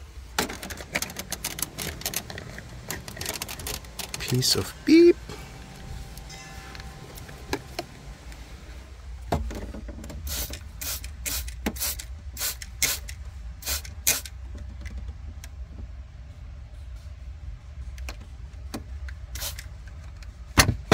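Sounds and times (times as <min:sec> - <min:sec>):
low steady hum: 0:00.0 - 0:20.9
spray bottle squirting: 0:10.2 - 0:14.4, 0:19.4 - 0:19.7.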